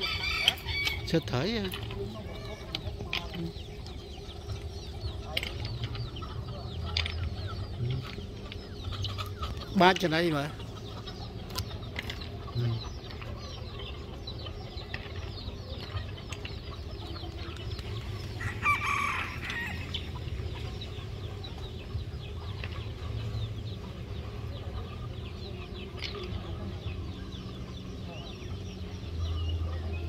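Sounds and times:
chickens clucking: 0.0s - 30.0s
rooster crowing: 18.4s - 19.9s.

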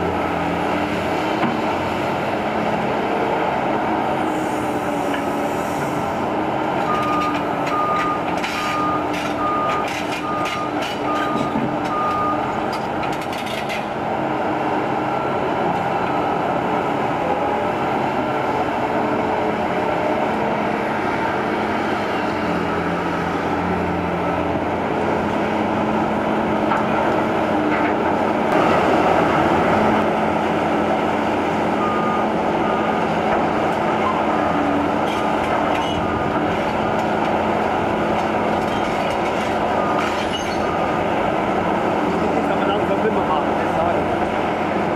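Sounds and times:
excavator diesel engine under load: 0.0s - 44.9s
reversing alarm beeps: 6.9s - 12.4s, 31.8s - 33.0s, 39.7s - 40.9s.

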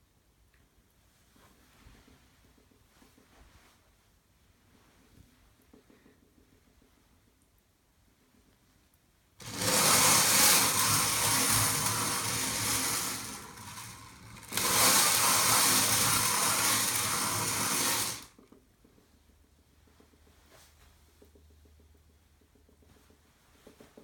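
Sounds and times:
wooden turntable turning on bearing: 9.4s - 18.6s.

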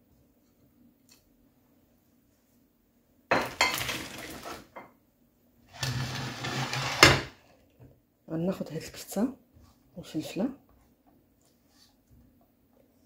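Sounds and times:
frying pan and spatula scraping: 3.5s - 4.8s, 5.7s - 7.4s.

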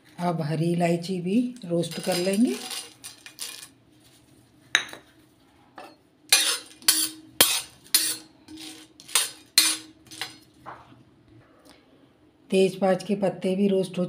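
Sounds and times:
metal spatula scraping iron pan: 1.8s - 3.7s, 6.3s - 10.4s.

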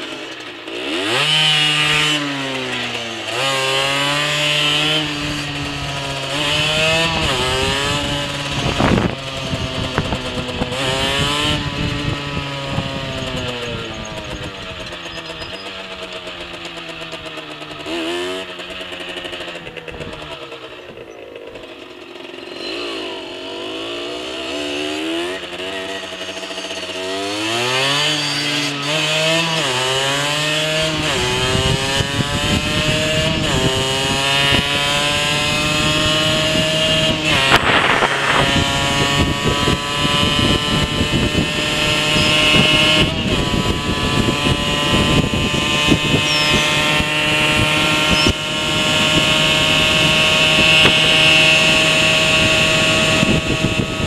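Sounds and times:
moped engine accelerating: 0.0s - 54.0s
wind noise on microphone: 4.9s - 15.0s, 30.9s - 54.0s.

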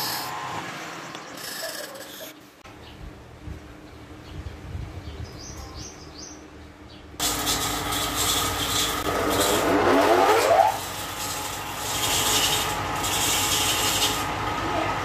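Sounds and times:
whirring and rubbing: 7.2s - 14.3s
wood lathe running: 7.2s - 15.0s.

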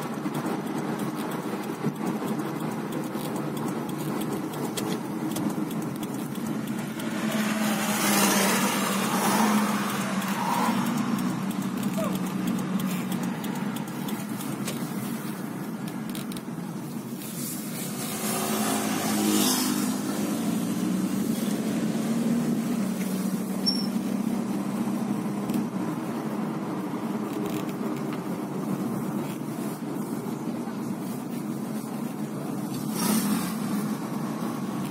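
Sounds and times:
car road and engine noise: 0.0s - 34.9s.

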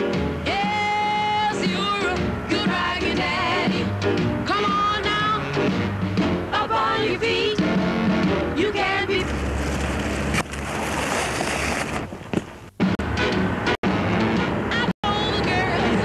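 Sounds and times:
song with singing voice: 0.3s - 9.4s, 14.6s - 16.0s.

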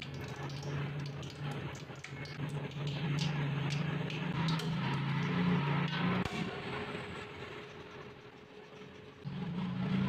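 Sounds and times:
hot oil crackling and popping: 0.0s - 6.4s.

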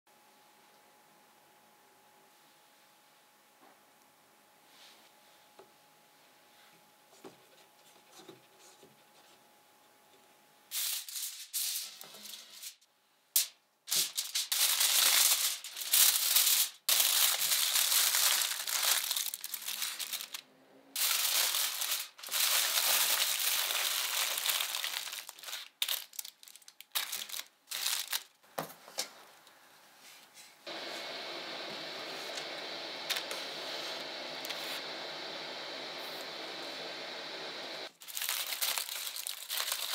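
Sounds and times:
aluminium foil crinkling: 10.7s - 12.8s, 13.4s - 20.4s, 21.0s - 28.4s, 37.9s - 39.9s.

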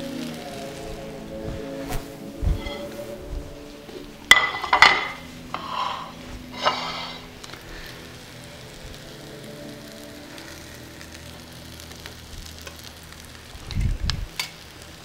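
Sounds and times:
metal utensils clattering: 4.3s - 7.3s.

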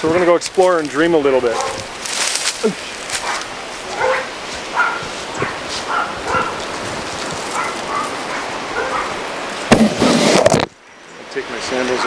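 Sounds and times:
steady background hiss: 0.0s - 12.0s
dog barking: 1.5s - 1.9s, 3.2s - 6.7s, 7.5s - 9.2s.

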